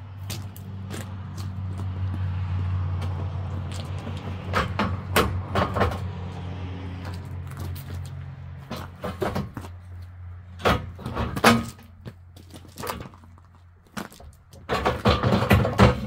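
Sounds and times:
pallet jack clanking on gravel: 0:03.7 - 0:06.2, 0:08.6 - 0:09.8, 0:10.5 - 0:16.0.

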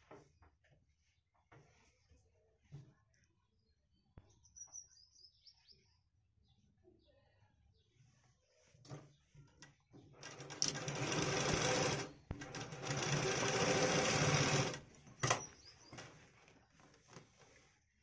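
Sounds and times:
sewing machine stitching: 0:10.2 - 0:15.4.

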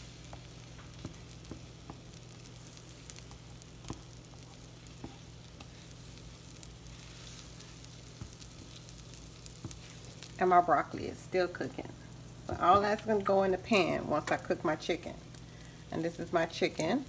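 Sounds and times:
butter sizzling in a frying pan: 0:00.0 - 0:17.0
small taps and pops: 0:00.3 - 0:02.1, 0:03.8 - 0:04.1.

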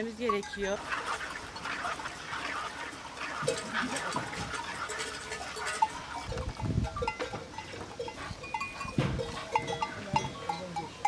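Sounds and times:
small bells clinking: 0:00.0 - 0:00.8, 0:03.4 - 0:11.0
dull thumps: 0:08.8 - 0:10.4.

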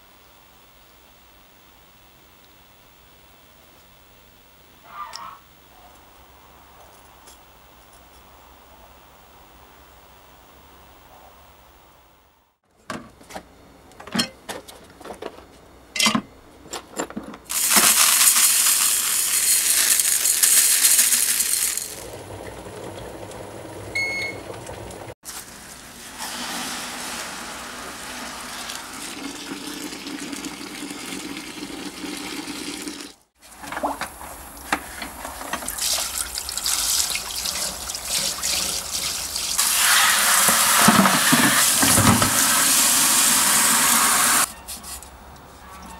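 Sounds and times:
small metal parts clinking: 0:17.5 - 0:22.0
hose water splashing into bucket: 0:17.5 - 0:22.6, 0:25.3 - 0:44.5.

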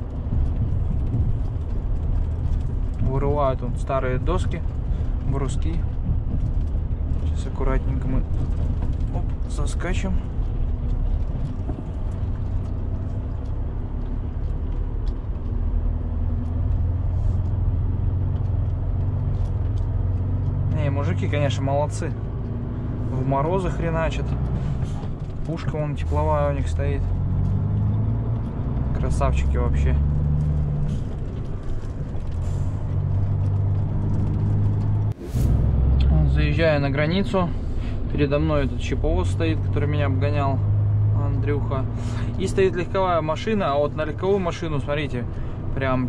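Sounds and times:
faint clicks and rattles: 0:00.0 - 0:35.2
diesel truck engine running: 0:00.0 - 0:46.0.

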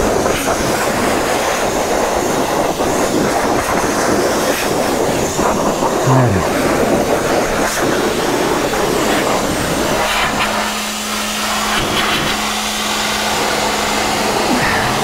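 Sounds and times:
pressure washer water jet hissing: 0:00.0 - 0:15.0
steady low hum: 0:05.2 - 0:07.0.

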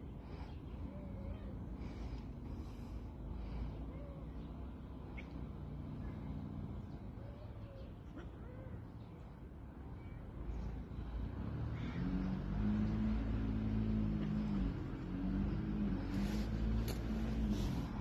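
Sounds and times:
vehicle engine running: 0:10.5 - 0:18.0.

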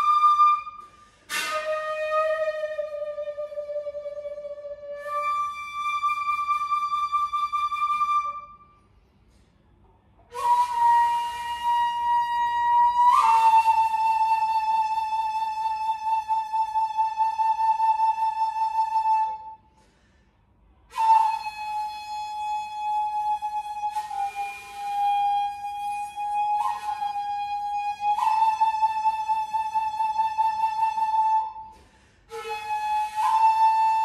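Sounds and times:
shakuhachi flute long notes: 0:00.0 - 0:08.8, 0:10.3 - 0:19.7, 0:20.9 - 0:34.0.

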